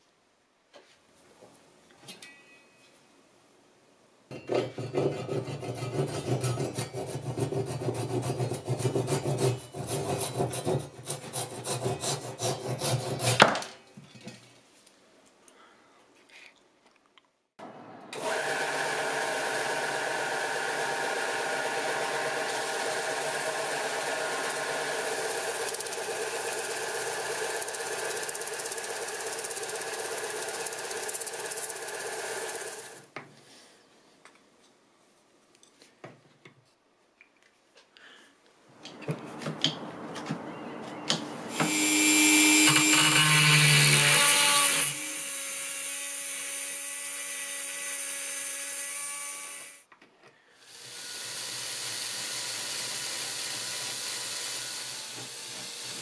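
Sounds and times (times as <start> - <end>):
hand saw rasping through block: 4.8 - 13.5
belt sander grinding: 18.2 - 33.0, 41.5 - 49.7.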